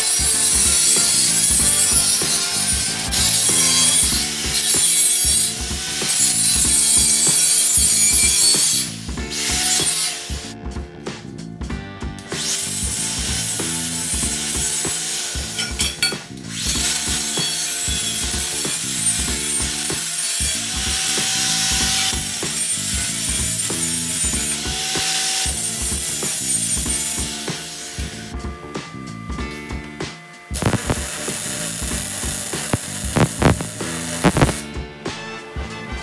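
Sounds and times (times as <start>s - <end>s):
angle grinder cutting steel: 0.0s - 10.6s, 12.3s - 28.4s, 30.4s - 34.7s.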